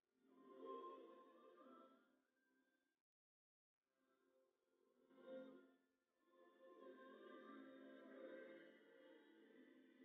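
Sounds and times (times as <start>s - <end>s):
faint background music: 4.8s - 10.0s.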